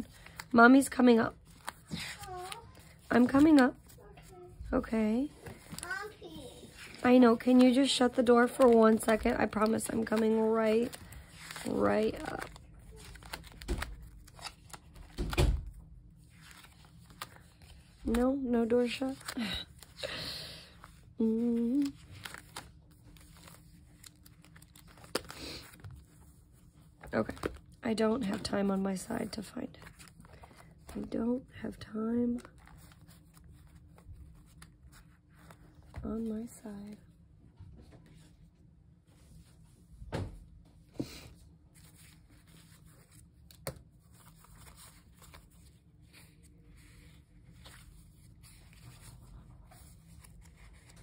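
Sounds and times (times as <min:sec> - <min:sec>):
paper sheets rustling: 0:00.0 - 0:04.6, 0:05.4 - 0:20.2, 0:20.8 - 0:31.1, 0:41.7 - 0:51.0
rustling and handling on a desk: 0:01.3 - 0:15.6.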